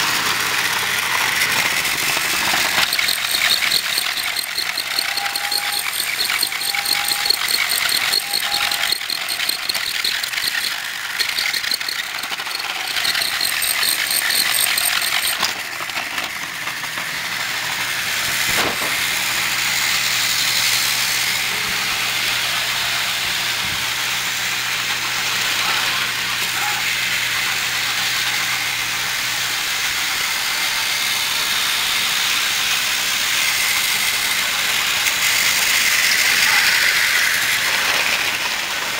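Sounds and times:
toy train motors whirring: 0.0s - 38.9s
fast even clicking: 2.2s - 15.4s.

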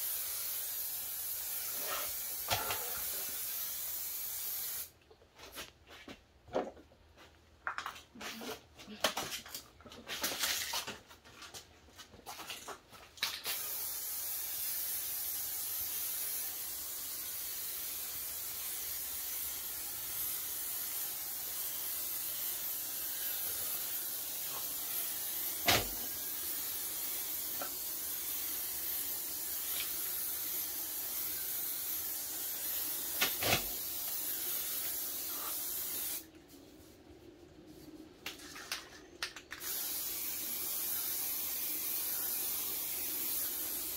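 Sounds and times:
spray can hissing: 0.0s - 4.9s, 13.2s - 36.3s, 39.6s - 43.9s.

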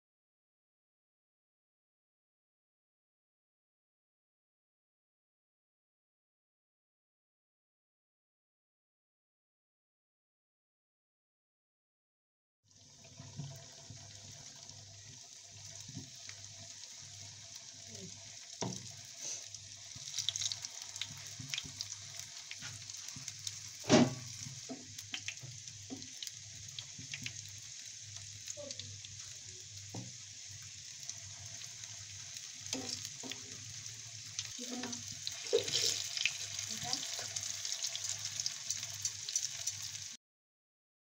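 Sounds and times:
parathas sizzling in hot oil: 12.7s - 40.2s
knocks in frying pan: 18.6s - 18.9s, 23.8s - 24.9s, 30.0s - 30.2s.

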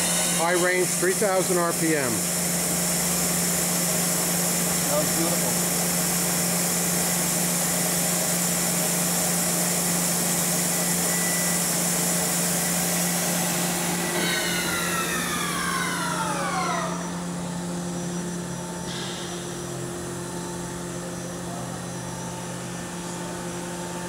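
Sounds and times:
spindle mechanical whine: 0.0s - 2.3s, 10.7s - 24.0s
constant machine hum: 0.0s - 24.0s.

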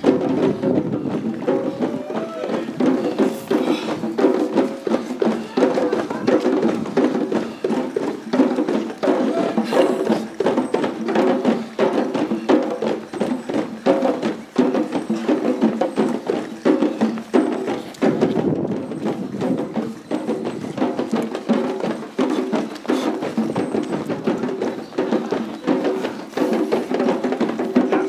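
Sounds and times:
group drumming fast rhythm: 0.0s - 28.0s.

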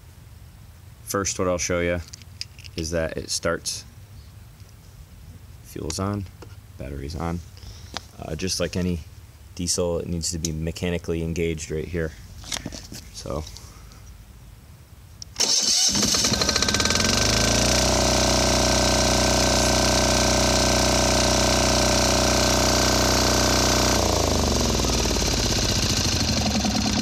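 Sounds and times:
electric starter cranking: 15.3s - 27.0s
diesel engine running: 15.4s - 27.0s.

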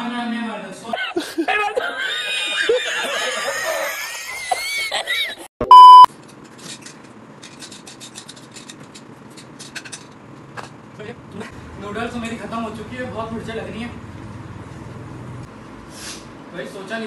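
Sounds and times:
man's wheezing laughter: 1.1s - 5.5s
loud steady beep: 5.6s - 6.1s.

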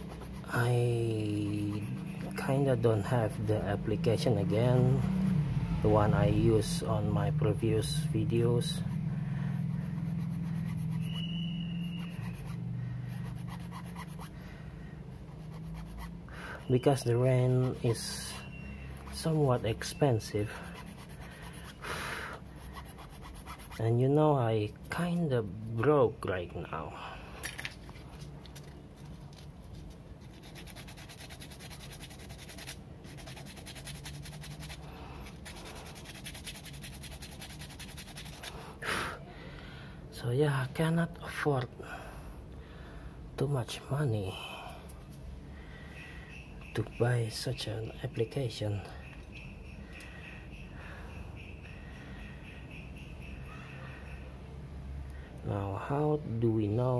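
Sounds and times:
steady low hum: 0.0s - 55.6s
plastic scratching against metal tool: 27.4s - 38.6s.

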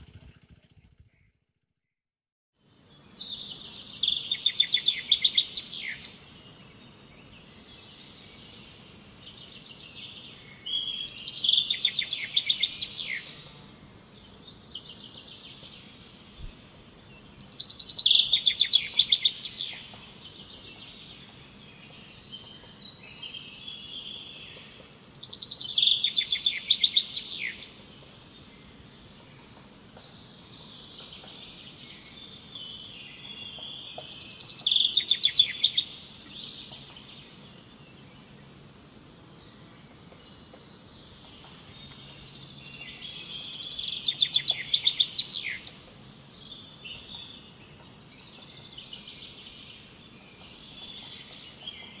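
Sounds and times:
outdoor background noise: 0.0s - 1.4s, 2.6s - 52.0s
songbird trilling: 3.3s - 6.1s, 10.6s - 13.5s, 17.6s - 20.0s, 25.2s - 27.8s, 30.6s - 37.3s, 41.3s - 47.5s.

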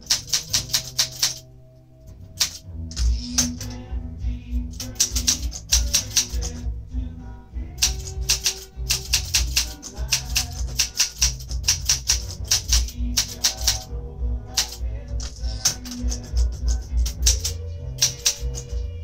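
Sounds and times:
manual typewriter typing: 0.0s - 1.4s, 2.4s - 2.6s, 4.8s - 6.6s, 7.8s - 13.9s, 14.6s - 18.8s
music with low tones: 0.0s - 19.0s.

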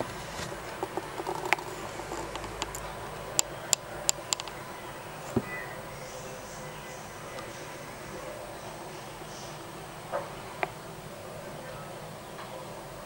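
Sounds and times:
faint steady hiss: 0.0s - 13.0s
sharp clicks: 0.8s - 4.8s.

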